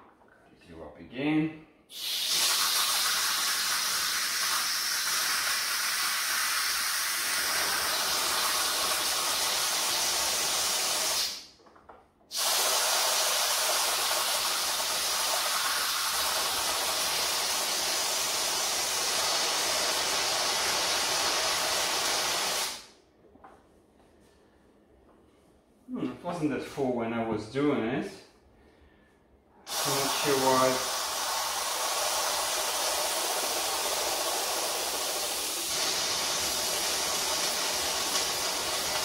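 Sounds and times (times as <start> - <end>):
steam hissing from pressure valve: 1.9 - 11.5, 12.3 - 22.9, 29.7 - 39.0.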